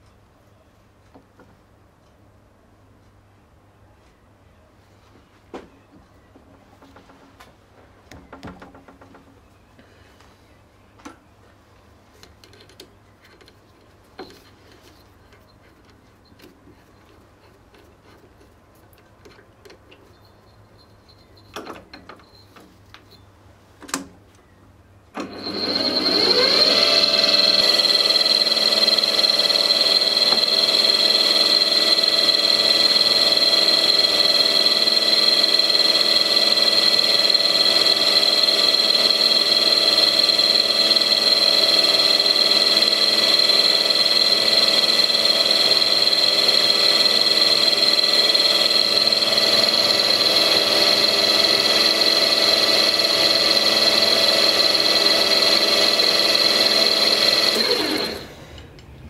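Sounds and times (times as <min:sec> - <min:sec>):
spindle motor whining: 0:25.2 - 0:58.9.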